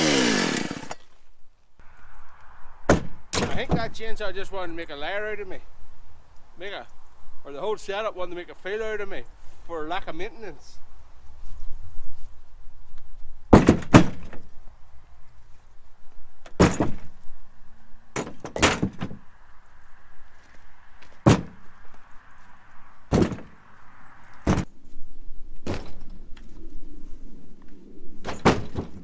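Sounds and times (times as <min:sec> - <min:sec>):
logs thudding down: 0:02.9 - 0:03.9, 0:13.5 - 0:14.5, 0:16.4 - 0:17.2, 0:18.2 - 0:19.2, 0:21.0 - 0:21.6, 0:23.1 - 0:23.6, 0:25.6 - 0:26.2, 0:28.2 - 0:29.0.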